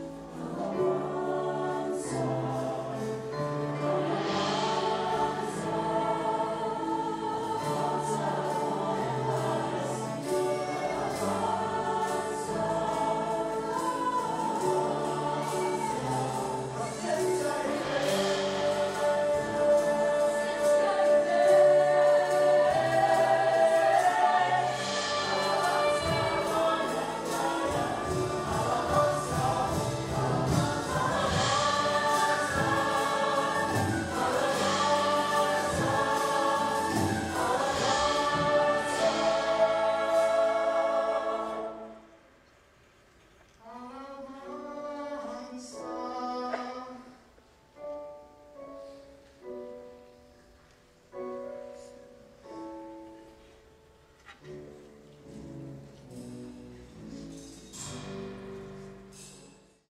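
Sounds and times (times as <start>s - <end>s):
cast singing in chorus: 0.4s - 42.1s.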